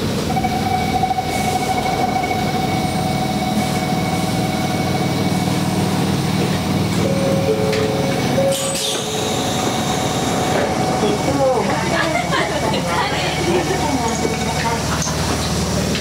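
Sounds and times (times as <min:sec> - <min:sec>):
train running gear rumbling: 0:00.0 - 0:16.0
high squeal: 0:08.4 - 0:10.9.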